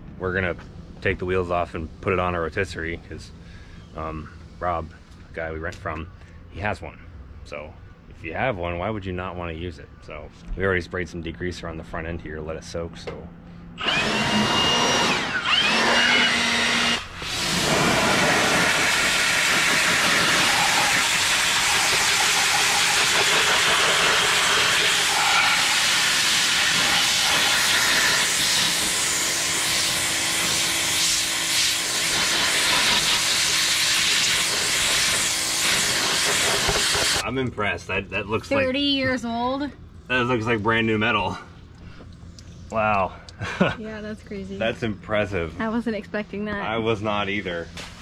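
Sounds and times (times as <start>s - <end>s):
pressure washer spraying metal: 17.1s - 37.2s.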